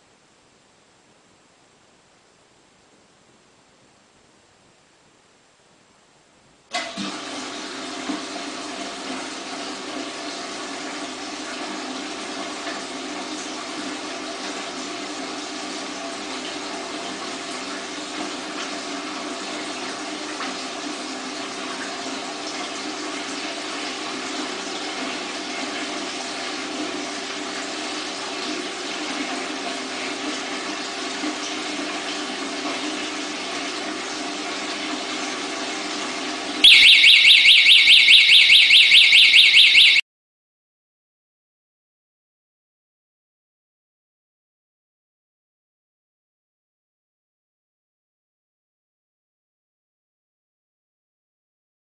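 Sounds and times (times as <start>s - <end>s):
water pump humming: 6.7s - 40.0s
water gushing from hose: 6.8s - 36.7s.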